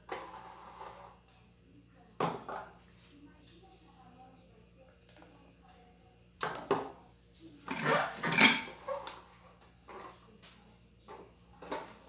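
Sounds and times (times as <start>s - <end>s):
metal cookware clattering on stone: 7.7s - 8.8s.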